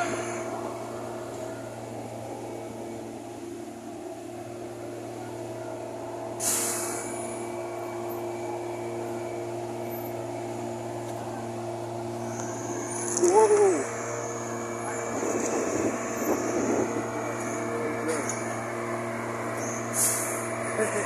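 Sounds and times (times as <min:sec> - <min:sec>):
diesel engine humming: 0:00.0 - 0:21.0
air hissing: 0:06.4 - 0:07.4, 0:19.7 - 0:20.5.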